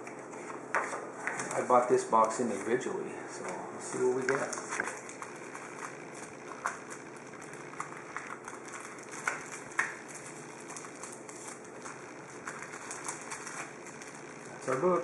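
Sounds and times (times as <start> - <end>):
card packs sliding: 14.5 - 15.0.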